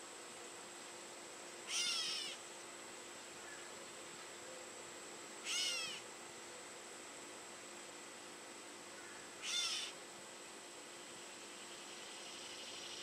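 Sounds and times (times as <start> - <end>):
faint high insect trill: 0.0 - 13.0
catbird mew calls: 1.7 - 2.4, 5.4 - 6.0, 9.4 - 10.0.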